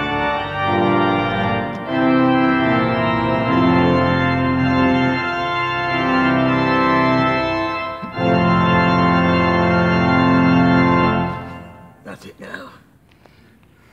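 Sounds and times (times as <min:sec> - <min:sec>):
pipe organ playing full chords: 0:00.0 - 0:12.1.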